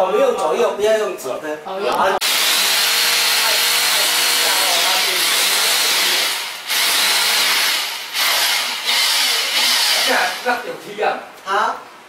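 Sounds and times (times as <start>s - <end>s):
hammer drill drilling: 2.2s - 10.6s.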